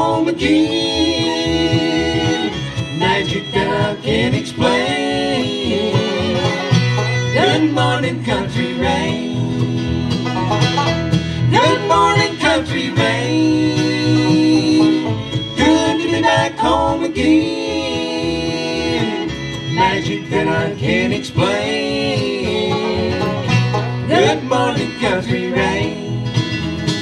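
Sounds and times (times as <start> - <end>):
bluegrass band playing: 0.0 - 27.0.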